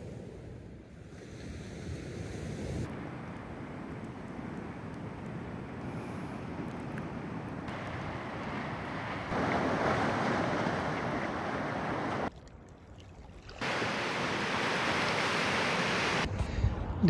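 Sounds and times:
wind: 0.0 - 17.0
waves breaking on rocks: 3.0 - 12.3.

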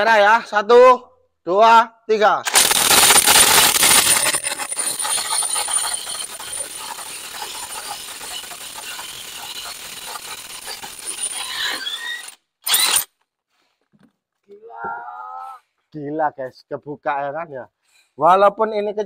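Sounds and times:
impact wrench hammering: 2.5 - 13.0.

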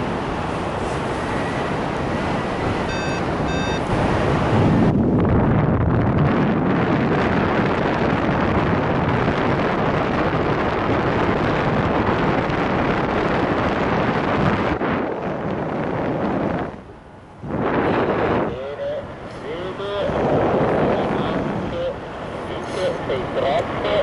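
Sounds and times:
wind rushing over microphone: 0.0 - 24.0.

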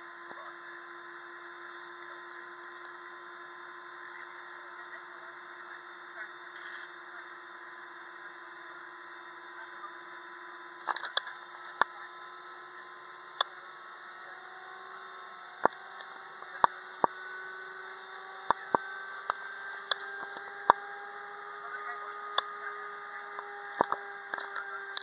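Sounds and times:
jet engine hum in cabin: 0.0 - 25.0.

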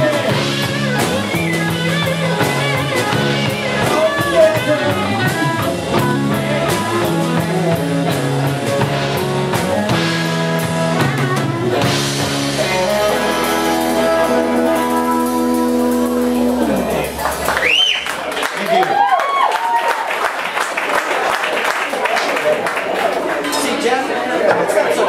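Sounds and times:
held guitar chords ringing: 0.0 - 17.2
drum kit: 0.0 - 18.3
live rock band playing: 0.0 - 18.4.

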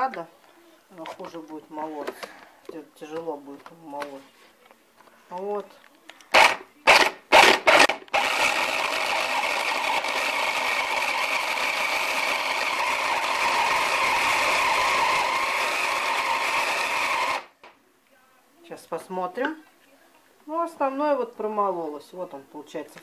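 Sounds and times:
blender grinding meat: 6.4 - 17.5.

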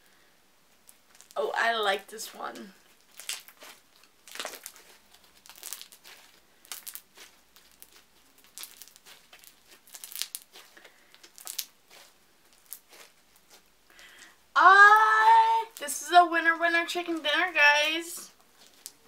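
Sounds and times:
slime crackles and pops: 0.8 - 1.4, 2.5 - 13.8, 18.3 - 19.0
slime squished by hand: 2.9 - 13.8.

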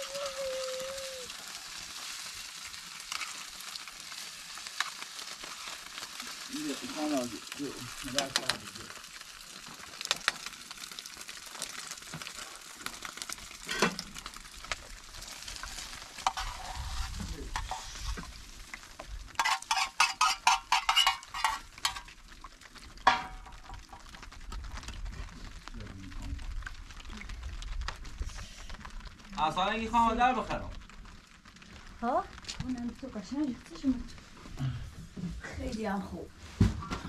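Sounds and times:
sizzling hiss: 0.0 - 22.4
stirring and scraping in a pan: 1.3 - 25.6.

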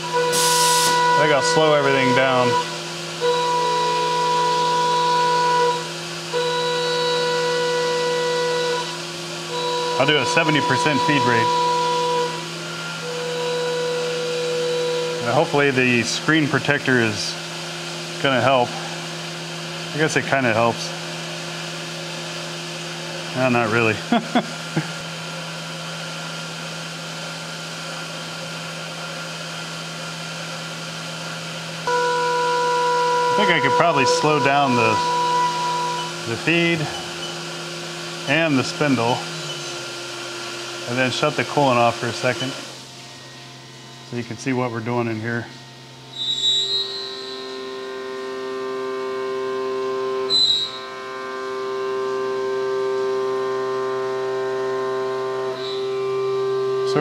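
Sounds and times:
short high squeal: 0.0 - 5.9, 9.6 - 15.2, 32.1 - 37.5, 46.1 - 52.2, 55.6 - 57.0
milling machine hum and whine: 0.0 - 57.0
coolant spray hiss: 0.3 - 1.0.

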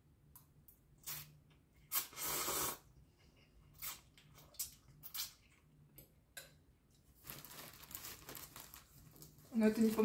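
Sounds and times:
person slurping noodles: 1.9 - 2.9.

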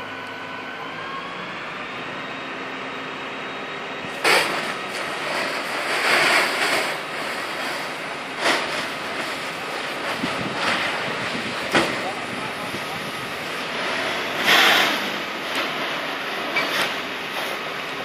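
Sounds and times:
fire hose water jet spraying: 4.0 - 18.0.

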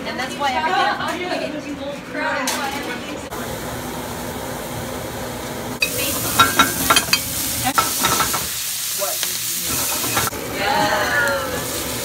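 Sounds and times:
kitchen background noise: 0.0 - 12.0
vegetables sizzling in pan: 3.4 - 12.0
spoon clinking and scraping pan: 5.8 - 8.5, 9.7 - 10.3.

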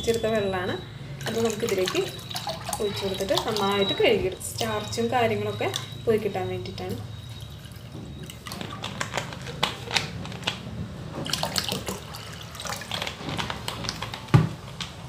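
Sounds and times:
water pouring into a bowl: 1.2 - 4.0, 11.2 - 13.3.

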